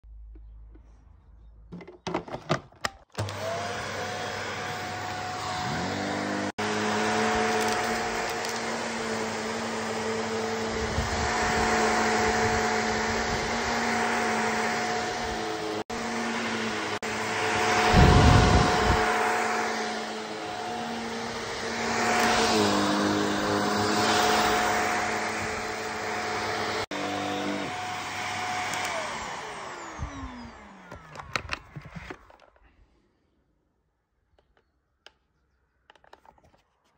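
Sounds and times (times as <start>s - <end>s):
vacuum cleaner motor whine: 3.1s - 32.5s.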